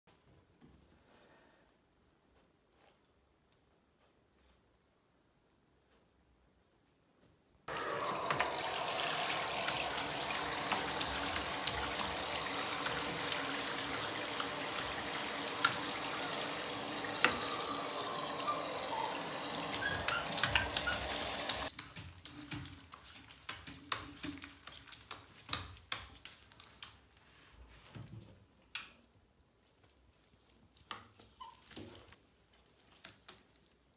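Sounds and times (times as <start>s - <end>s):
shower head spraying water: 7.7s - 21.7s
water dripping in tub: 7.7s - 26.8s.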